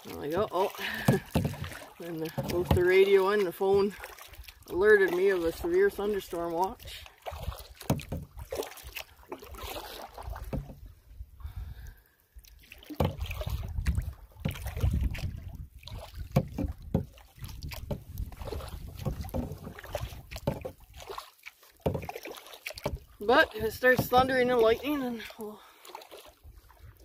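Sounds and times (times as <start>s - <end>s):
knocks and splashes: 0.0s - 11.2s, 12.4s - 27.0s
small waves slapping a canoe hull: 0.0s - 27.0s
wind gusting on microphone: 13.5s - 15.8s.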